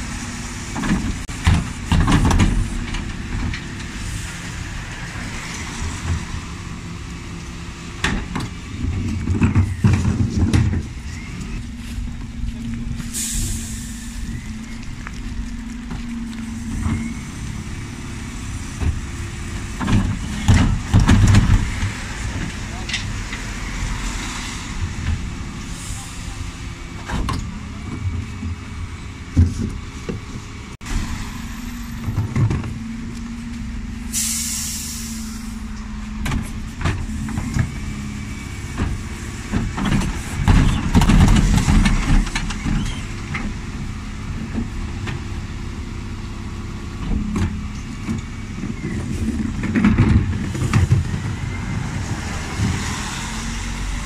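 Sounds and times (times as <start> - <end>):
garbage truck engine running: 0.0 - 54.0
sharp hiss of air: 13.0 - 14.3, 34.1 - 35.6.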